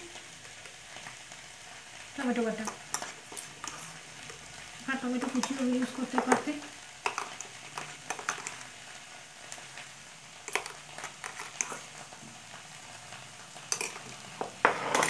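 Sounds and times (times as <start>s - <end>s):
vegetables sizzling in a pan: 0.0s - 15.0s
metal spatula scraping a pan: 2.6s - 4.1s, 10.5s - 12.0s, 14.6s - 15.0s.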